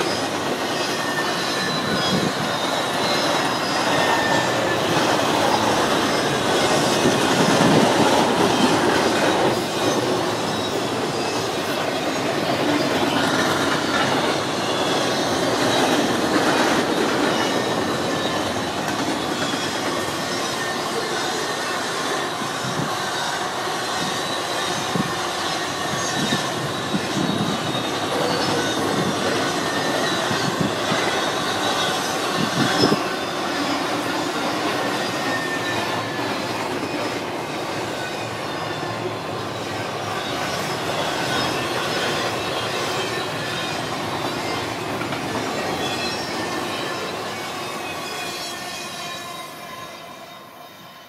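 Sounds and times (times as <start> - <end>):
train wheels rumbling on rail: 0.0 - 50.9
faint high wheel squeal: 0.0 - 51.0
clacks over rail joints: 42.8 - 46.9.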